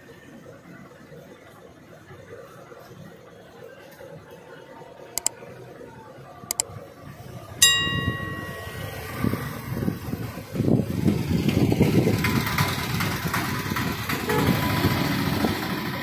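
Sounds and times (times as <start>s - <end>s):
street hubbub: 0.0s - 16.0s
bell ding: 7.6s - 9.3s.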